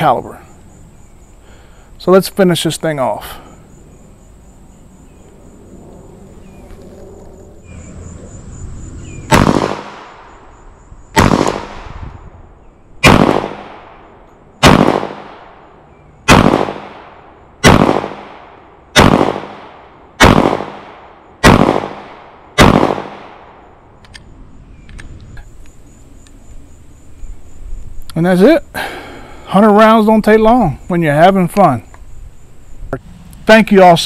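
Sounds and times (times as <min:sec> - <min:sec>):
pistol shots with echo: 0:09.3 - 0:10.4, 0:11.2 - 0:12.0, 0:13.0 - 0:15.6, 0:16.2 - 0:23.6.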